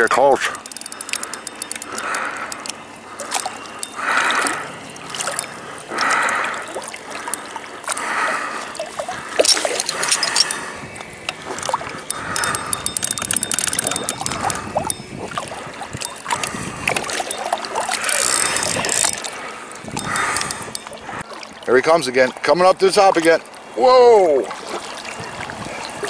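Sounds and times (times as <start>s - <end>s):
water sloshing and lapping: 0.0s - 26.0s
sharp clicks: 0.6s - 8.0s, 9.4s - 19.3s.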